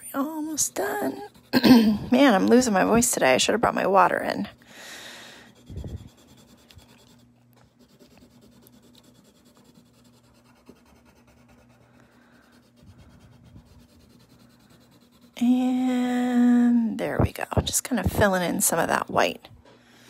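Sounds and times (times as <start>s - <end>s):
pencil scratching on paper: 0.5s - 2.6s, 5.4s - 15.6s.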